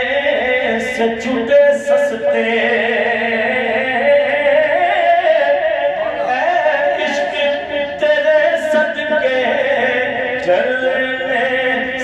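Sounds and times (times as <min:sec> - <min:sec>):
man singing unaccompanied: 0:00.0 - 0:12.0.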